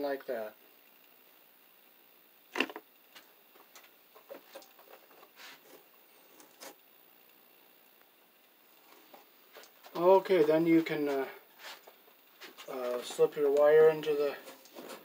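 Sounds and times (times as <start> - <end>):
faint clicks and rustles: 2.8 - 15.0.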